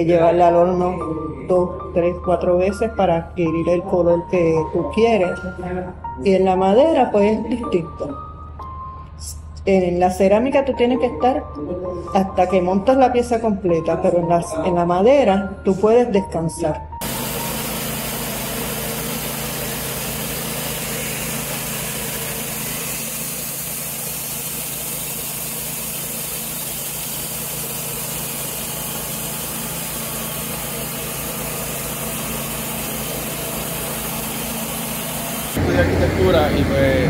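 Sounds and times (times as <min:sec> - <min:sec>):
band sawmill running: 0:17.0 - 0:37.0.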